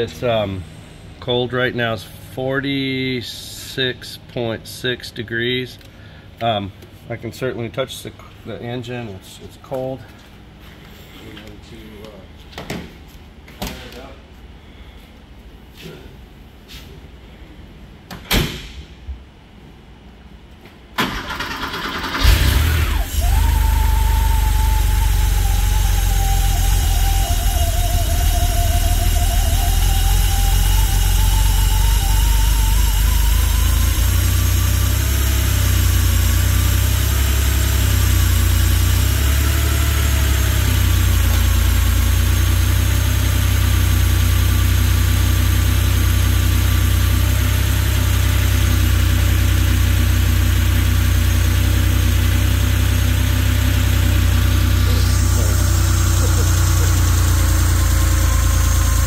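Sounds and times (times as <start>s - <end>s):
car engine idling: 21.0s - 59.0s.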